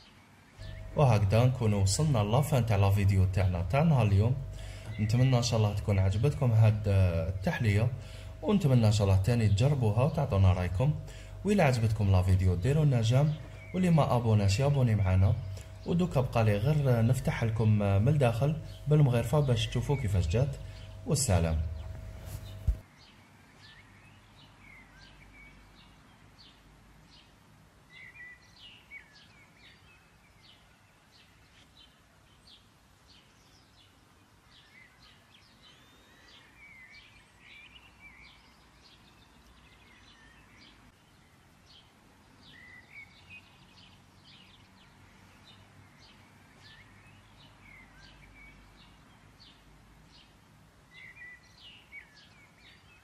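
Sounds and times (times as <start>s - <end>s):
steady background noise: 0.0s - 25.3s
small birds chirping: 0.0s - 53.0s.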